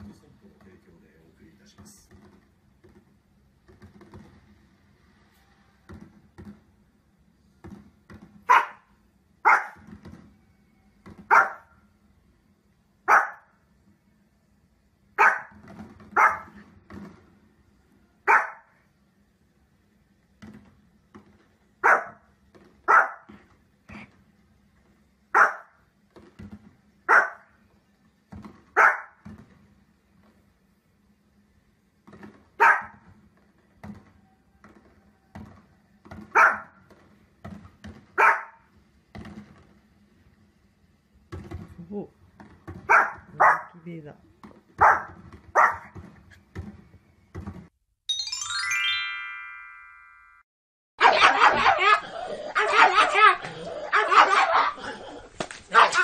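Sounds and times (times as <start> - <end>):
small dog barking: 8.5 - 9.8, 11.3 - 11.7, 13.1 - 13.5, 15.2 - 15.6, 16.2 - 16.6, 18.2 - 18.7, 21.8 - 22.2, 22.9 - 23.3, 25.4 - 25.8, 27.1 - 27.5, 28.8 - 29.2, 32.6 - 33.0, 36.3 - 36.8, 38.2 - 38.7, 42.9 - 43.8, 44.8 - 45.9, 51.0 - 56.0
soft dog woofs: 51.0 - 56.0.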